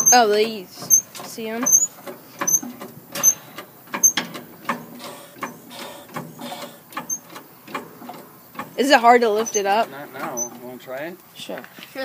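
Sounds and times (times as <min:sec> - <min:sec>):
faint high squeaks: 0:00.0 - 0:04.3, 0:05.0 - 0:07.3, 0:09.2 - 0:10.7
mechanical clicks and knocks: 0:00.0 - 0:10.7.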